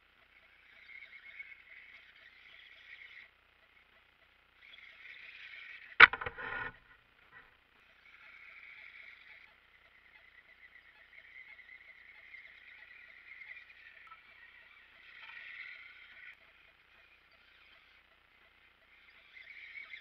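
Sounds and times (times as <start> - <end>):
sharp knock: 6.0 - 6.8
brief rattle: 6.0 - 7.4.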